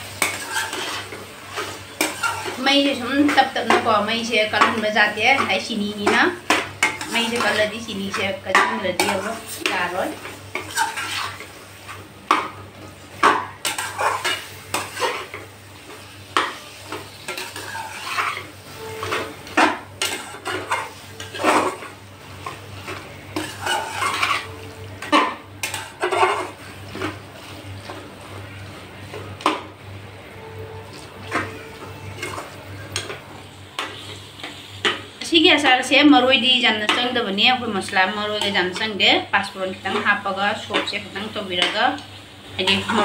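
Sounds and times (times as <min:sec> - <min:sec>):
metal spatula scraping a pan: 0:00.0 - 0:12.4, 0:13.2 - 0:29.5, 0:30.4 - 0:35.0, 0:42.6 - 0:43.0.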